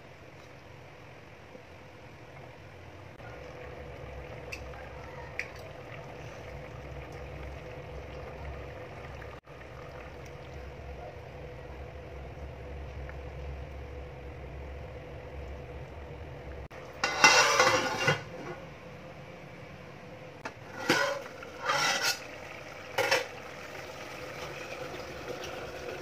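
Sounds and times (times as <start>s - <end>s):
liquid pouring: 3.3s - 11.2s, 22.2s - 26.0s.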